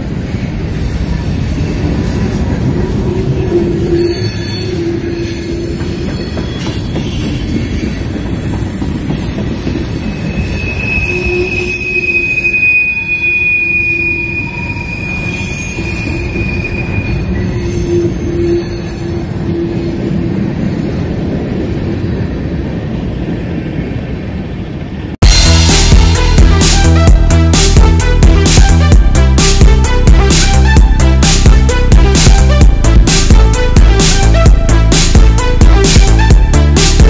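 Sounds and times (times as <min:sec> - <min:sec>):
train cars rumbling on rails: 0:00.0 - 0:37.0
high-pitched wheel squeal: 0:03.0 - 0:08.1, 0:09.1 - 0:21.0.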